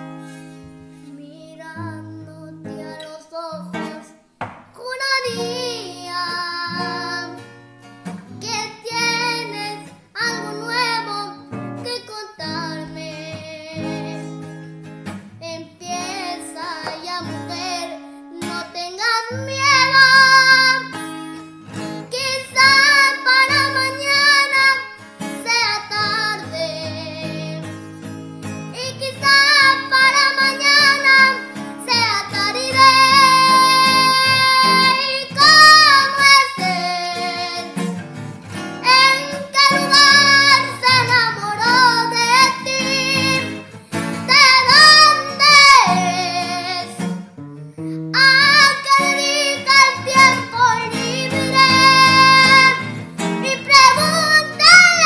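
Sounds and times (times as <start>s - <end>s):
boy singing with vibrato: 0.9s - 7.6s, 8.3s - 14.5s, 15.3s - 27.8s, 28.7s - 38.0s, 38.6s - 47.3s, 48.0s - 55.0s.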